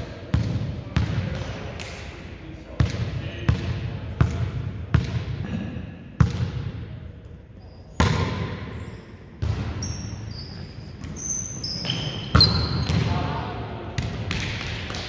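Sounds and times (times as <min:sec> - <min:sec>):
shoes squeaking on gym floor: 0:09.7 - 0:12.9.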